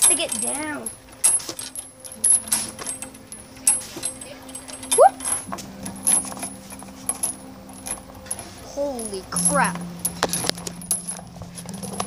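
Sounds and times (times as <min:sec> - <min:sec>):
chains clinking and rattling: 0:00.0 - 0:12.0
boy shouting whoop: 0:05.0 - 0:05.2.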